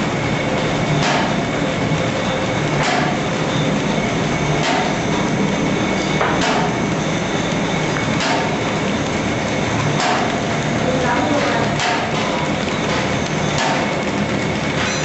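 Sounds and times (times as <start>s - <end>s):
paper bag machine clatter: 0.0s - 15.0s.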